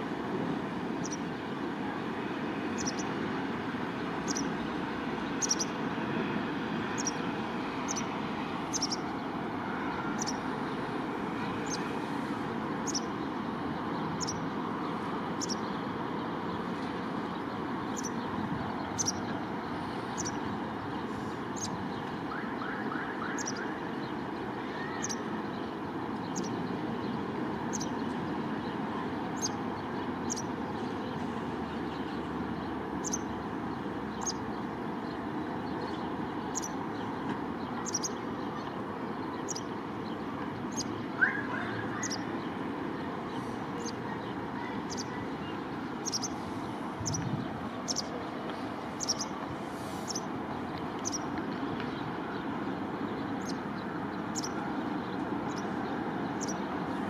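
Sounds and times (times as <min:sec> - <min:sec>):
distant city traffic: 0:00.0 - 0:57.0
bird chirping: 0:01.0 - 0:01.3, 0:02.7 - 0:03.2, 0:03.9 - 0:05.8, 0:06.9 - 0:10.8, 0:11.4 - 0:11.9, 0:12.8 - 0:15.9, 0:16.5 - 0:19.5, 0:20.1 - 0:22.4, 0:23.2 - 0:28.2, 0:29.4 - 0:42.6, 0:43.3 - 0:48.3, 0:48.9 - 0:49.5, 0:50.1 - 0:52.5, 0:53.1 - 0:56.7.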